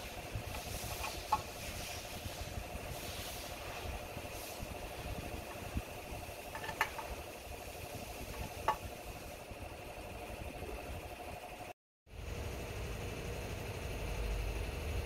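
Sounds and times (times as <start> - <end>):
motor running with fast pulse: 0.0 - 15.0.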